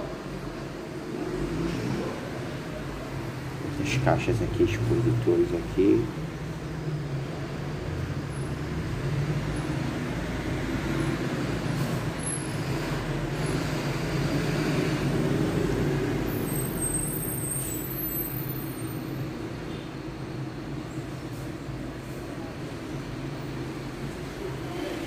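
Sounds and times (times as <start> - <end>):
heavy vehicles rumbling: 0.0 - 25.0.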